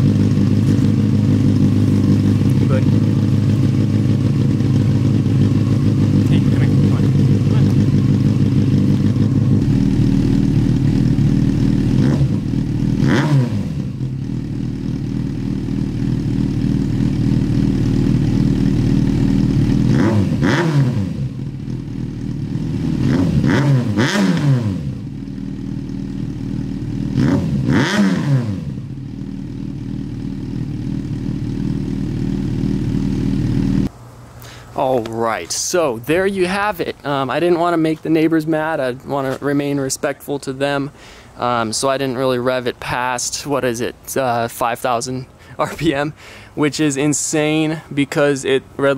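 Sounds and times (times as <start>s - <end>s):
motorcycle engine idling: 0.0s - 24.2s, 24.8s - 34.5s
motorcycle throttle blips: 0.0s - 35.2s.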